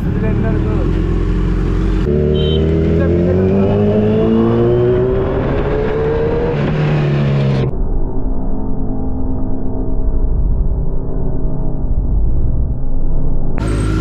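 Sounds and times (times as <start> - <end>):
motorcycle engine accelerating: 0.0 - 7.7.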